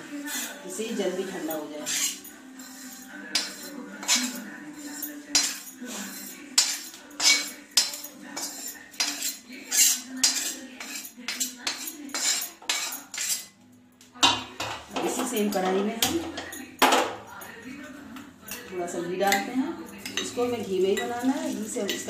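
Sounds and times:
spatula scraping a pan: 0.0 - 13.6, 19.3 - 22.0.

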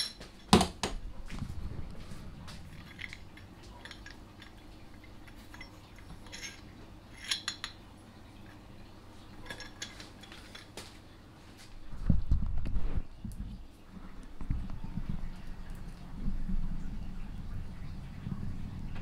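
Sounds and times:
light metallic clinks and taps: 2.5 - 7.8.

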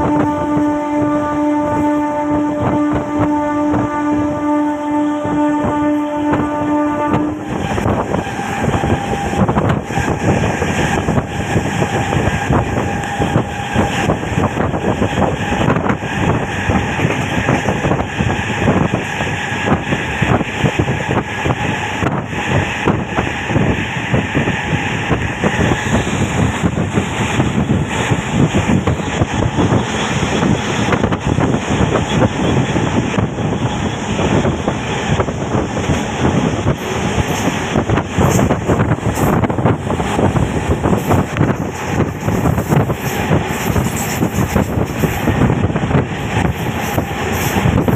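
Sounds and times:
train rumble: 0.0 - 47.9
wheels clattering on rails: 25.1 - 47.9.

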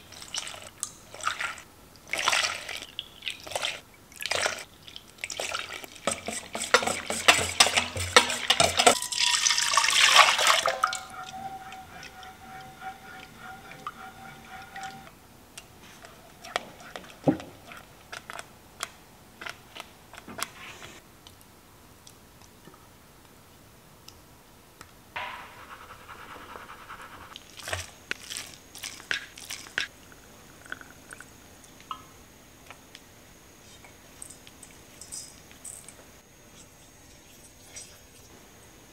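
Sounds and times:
spatula scraping a saucepan: 6.0 - 15.1.

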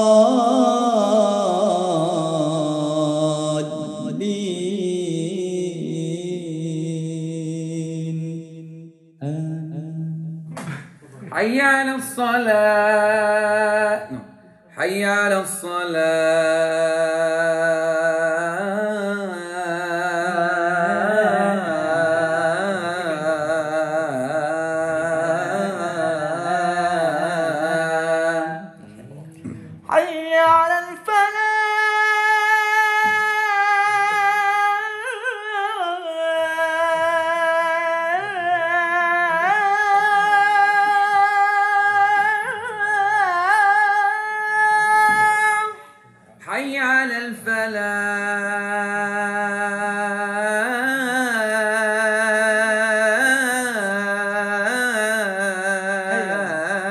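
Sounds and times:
man singing call to prayer low voice: 0.0 - 10.5, 11.3 - 56.9
man singing long high notes: 0.0 - 10.5, 14.8 - 28.8.

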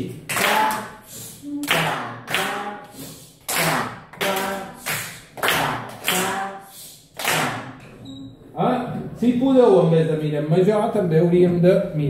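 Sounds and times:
children clapping in unison: 0.0 - 7.8.

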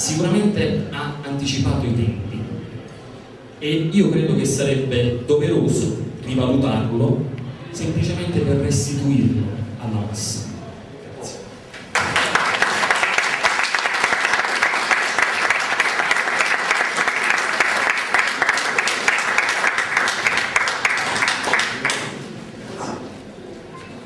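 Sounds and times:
audience applauding: 11.8 - 22.3.

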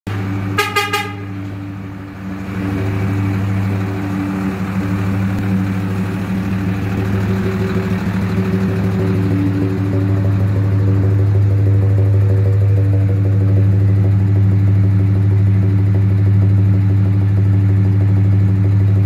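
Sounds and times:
truck diesel engine idling: 0.1 - 19.0
short horn toot: 0.5 - 1.4.

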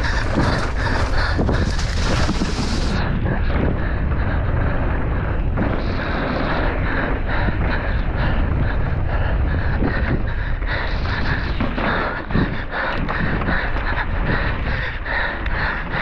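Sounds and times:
bike knocking and rattling: 0.0 - 8.7
steady rumble of bike tyres: 0.0 - 16.0
wind buffeting microphone: 0.0 - 16.0.

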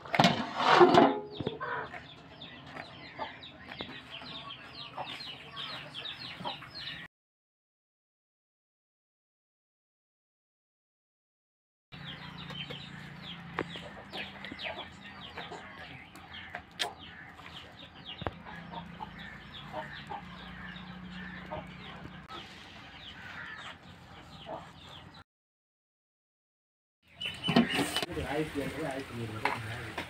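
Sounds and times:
chickens clucking: 0.0 - 7.1, 12.0 - 25.2, 27.1 - 30.0
small birds chirping: 1.3 - 7.1, 12.0 - 25.2, 27.0 - 30.0.

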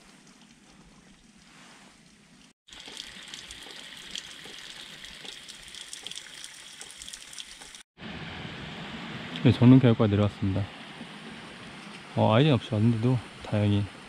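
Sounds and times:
water trickling and dripping: 0.0 - 7.9.

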